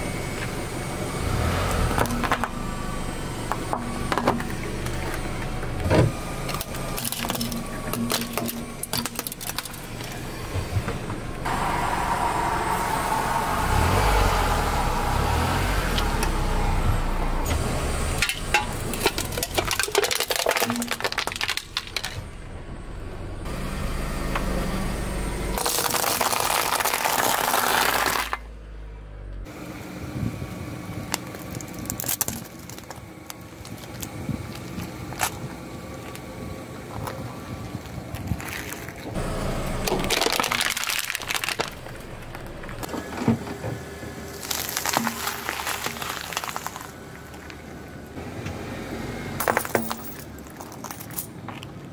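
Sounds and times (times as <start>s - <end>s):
car engine running low: 0.0s - 51.8s
objects cracking under car tyre: 1.7s - 2.6s, 3.5s - 10.2s, 18.2s - 22.3s, 25.6s - 28.4s, 31.0s - 39.2s, 39.8s - 43.5s, 44.3s - 47.9s, 49.4s - 51.9s.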